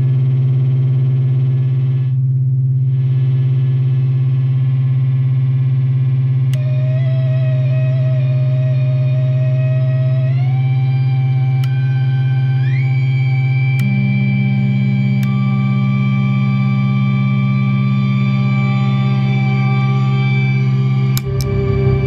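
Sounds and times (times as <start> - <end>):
buzzy low oscillator drone: 6.1 - 22.0
higher steady tone: 17.5 - 22.0.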